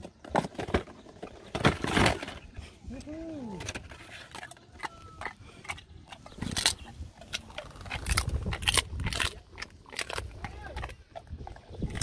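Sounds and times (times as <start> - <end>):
dog chewing cardboard box: 3.9 - 12.0.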